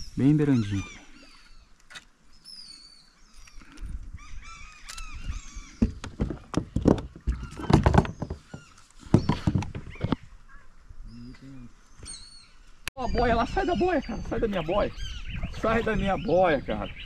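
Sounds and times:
birds calling: 0:00.0 - 0:17.0
dull knocks and thumps: 0:05.7 - 0:10.3.

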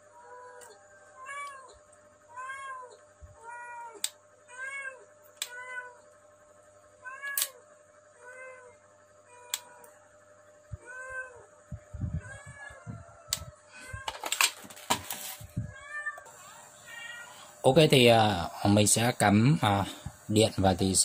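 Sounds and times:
cat meowing: 0:00.2 - 0:06.0, 0:10.8 - 0:11.4, 0:12.2 - 0:13.1, 0:15.7 - 0:17.4.

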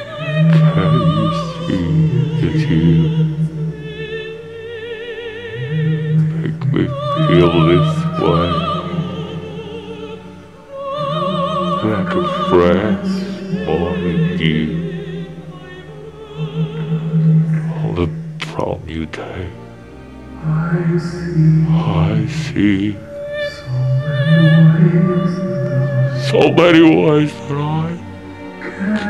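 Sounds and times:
low sustained accompaniment: 0:00.0 - 0:29.0
operatic singing with vibrato: 0:00.0 - 0:29.0.

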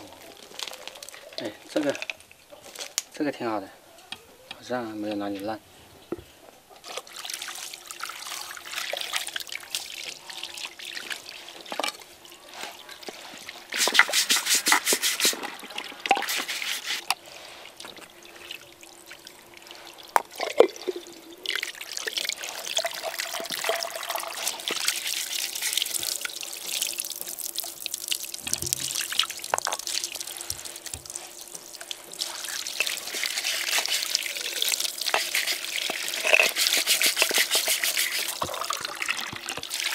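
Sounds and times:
water splashing from a hose: 0:06.8 - 0:39.9
brush scrubbing pottery: 0:12.5 - 0:18.6, 0:22.4 - 0:27.4, 0:29.8 - 0:39.1.

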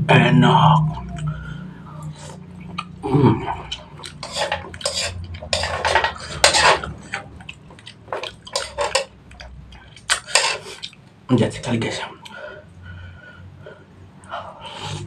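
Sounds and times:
metal fork scraping a wok: 0:04.0 - 0:07.3, 0:08.1 - 0:09.1, 0:10.1 - 0:10.8.

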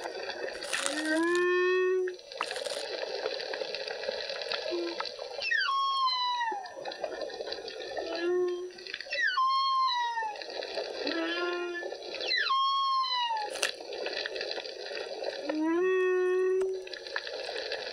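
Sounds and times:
watery rush: 0:00.0 - 0:15.9
humpback whale song: 0:00.6 - 0:02.7, 0:04.6 - 0:13.8, 0:15.2 - 0:17.4.

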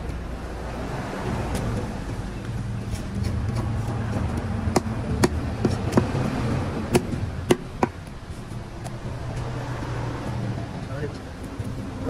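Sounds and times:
low rumble: 0:00.0 - 0:12.0
sharp knocks: 0:03.4 - 0:08.2.

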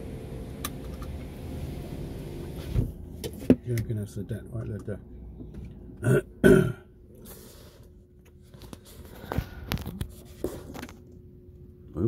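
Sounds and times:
throaty sounds from person: 0:06.0 - 0:07.0.

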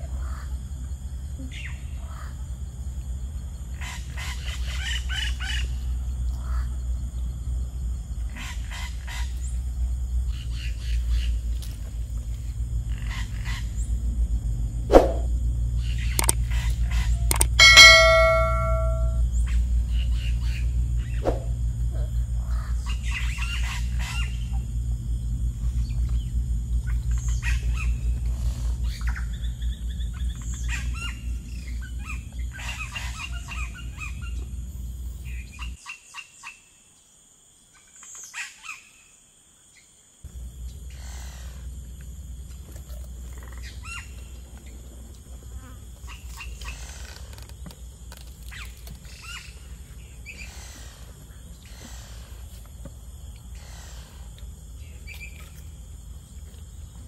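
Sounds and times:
insects: 0:00.0 - 0:57.0
birds chirping: 0:15.8 - 0:19.2.

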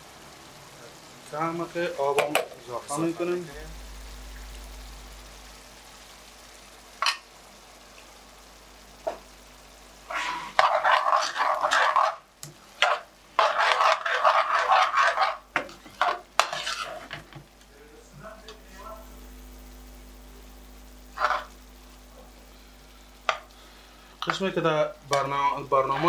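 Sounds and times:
meat sizzling in a frying pan: 0:00.0 - 0:26.0
metal spoon scraping a pan: 0:10.1 - 0:12.2, 0:12.8 - 0:17.4, 0:21.1 - 0:21.5, 0:25.1 - 0:26.0.

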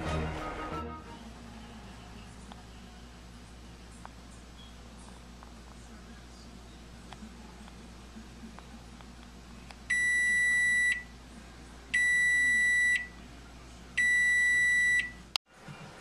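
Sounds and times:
microwave low hum: 0:00.0 - 0:16.0
microwave beeps: 0:09.9 - 0:11.1, 0:12.0 - 0:13.2, 0:14.0 - 0:15.3.

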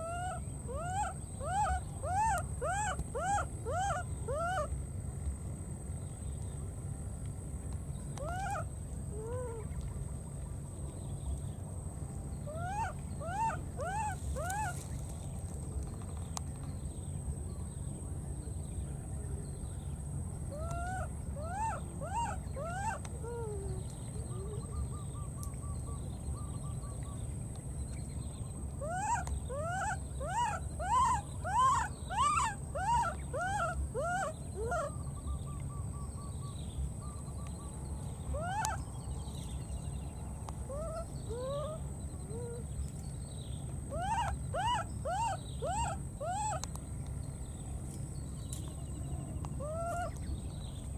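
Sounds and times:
baby monkey crying: 0:00.0 - 0:04.7, 0:12.5 - 0:14.7, 0:20.6 - 0:23.6, 0:28.8 - 0:34.9, 0:38.4 - 0:38.8, 0:43.9 - 0:46.6, 0:49.6 - 0:50.2.

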